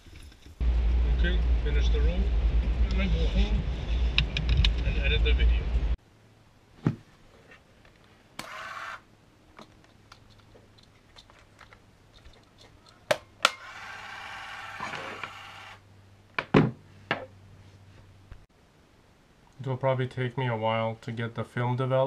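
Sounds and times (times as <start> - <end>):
camera motor whirring: 8.4 - 9.0, 13.5 - 15.8.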